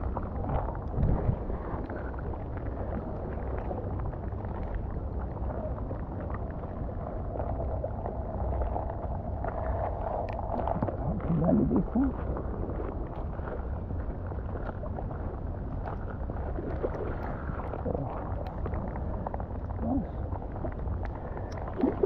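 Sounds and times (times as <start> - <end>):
wind buffeting microphone: 10.5 - 22.0
rain pattering: 16.6 - 22.0.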